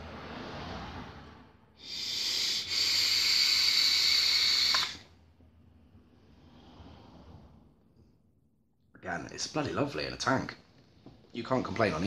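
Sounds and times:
e-cigarette draw hiss: 0:01.8 - 0:05.0
faint exhale: 0:01.8 - 0:05.1, 0:06.1 - 0:07.9.

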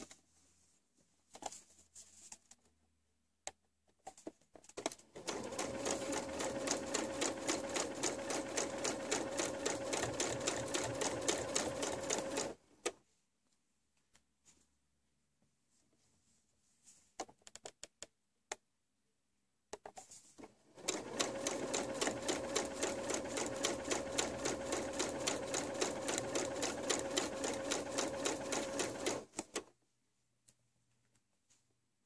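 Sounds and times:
sewing machine stitching: 0:05.1 - 0:12.6, 0:20.4 - 0:29.6.

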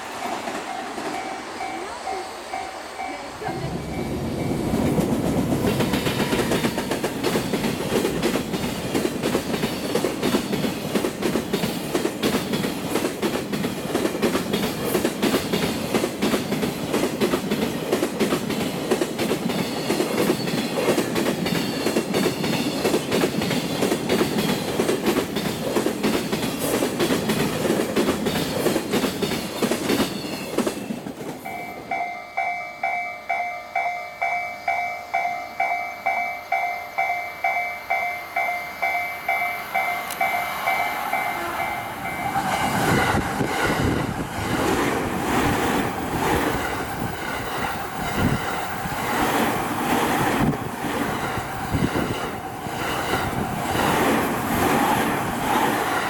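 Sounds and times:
level crossing warning bell: 0:00.3 - 0:07.8, 0:31.4 - 0:42.5
train wheels clattering over rail joints: 0:04.4 - 0:31.6.

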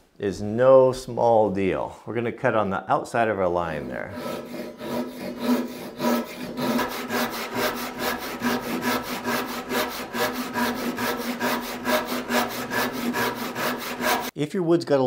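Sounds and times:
hand saw rasping through wood: 0:03.8 - 0:14.3.

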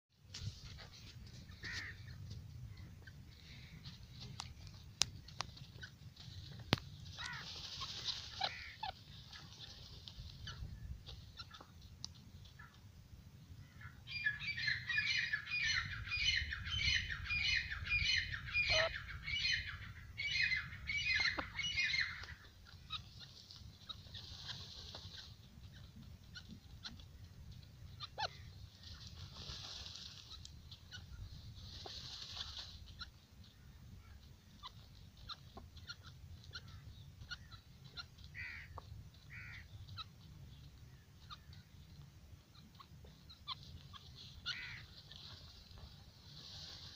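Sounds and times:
birds rustling in dry sand: 0:00.1 - 0:46.9
light ticks: 0:04.2 - 0:05.7, 0:11.1 - 0:12.8.

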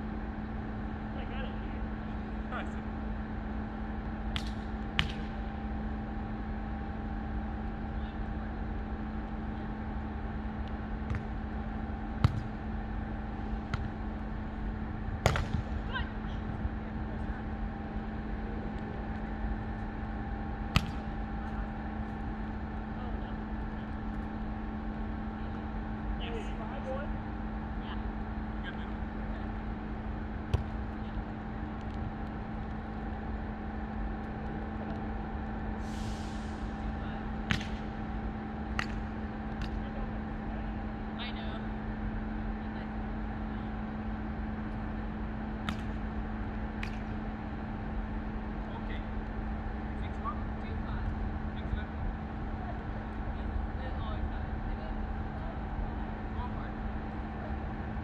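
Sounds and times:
background hum: 0:00.0 - 0:58.0
volleyball struck by hand: 0:04.3 - 0:05.3, 0:11.0 - 0:11.4, 0:12.2 - 0:12.5, 0:15.2 - 0:15.8, 0:20.7 - 0:21.1, 0:30.5 - 0:30.8, 0:37.5 - 0:37.9, 0:38.7 - 0:39.8, 0:45.6 - 0:46.0.

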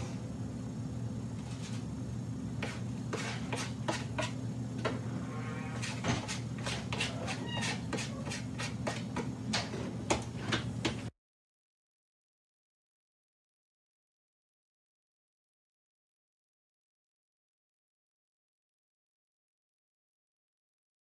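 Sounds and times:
steady low hum: 0:00.0 - 0:11.1.

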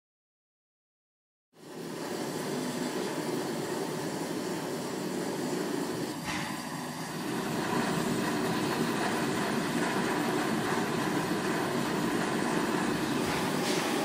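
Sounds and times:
forge fire rumbling: 0:07.1 - 0:14.0.

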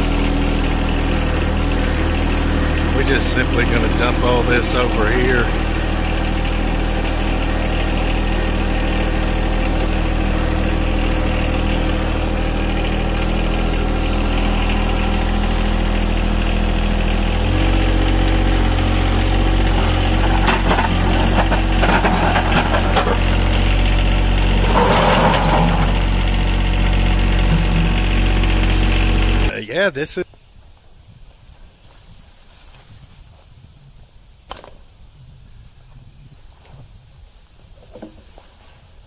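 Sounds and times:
machine engine running: 0:00.0 - 0:29.5
load rattling and clattering: 0:19.7 - 0:23.7, 0:24.6 - 0:26.2.

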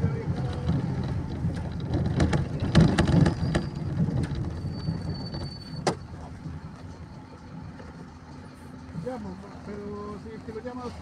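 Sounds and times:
thin high squeal: 0:04.6 - 0:06.0.

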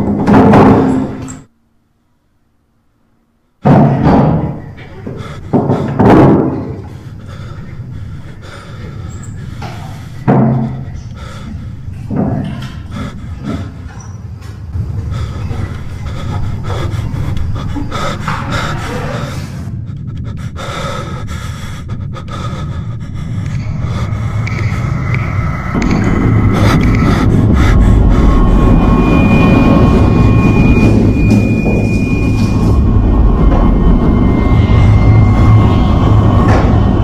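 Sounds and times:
man panting heavily: 0:04.8 - 0:14.0, 0:14.8 - 0:30.2
low drone with music: 0:14.7 - 0:37.0.

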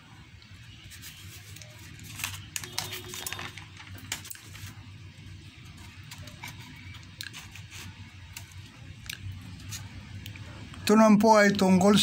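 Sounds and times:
paper rustling: 0:00.8 - 0:05.0, 0:05.6 - 0:08.6.

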